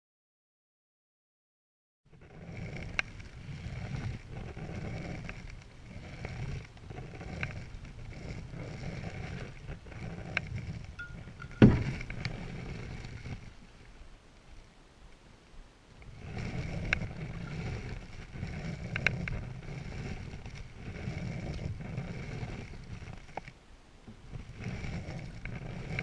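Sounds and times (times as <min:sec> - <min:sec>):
paddle strokes swishing water: 0:02.2 - 0:14.7, 0:15.8 - 0:26.0
paddle clicking against hull: 0:02.5 - 0:13.6, 0:16.0 - 0:26.0
thump on canoe: 0:11.5 - 0:12.2.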